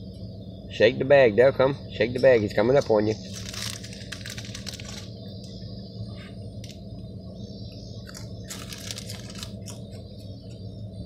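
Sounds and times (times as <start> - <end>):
low hum: 0.0 - 11.0
bag crinkling: 3.2 - 5.1, 8.1 - 9.8.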